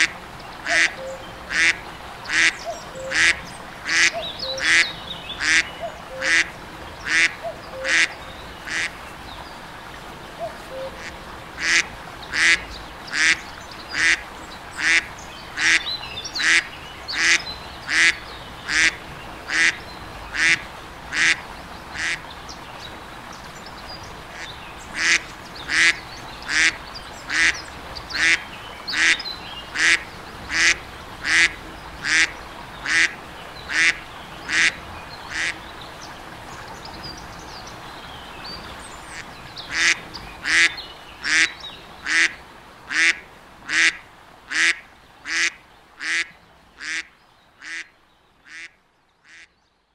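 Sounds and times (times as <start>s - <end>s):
duck quacking: 0.0s - 8.1s, 8.7s - 8.9s, 10.9s - 13.4s, 14.0s - 14.2s, 14.8s - 15.8s, 16.4s - 19.8s, 20.4s - 21.4s, 22.0s - 22.2s, 24.4s - 27.6s, 29.8s - 35.6s, 39.1s - 49.5s.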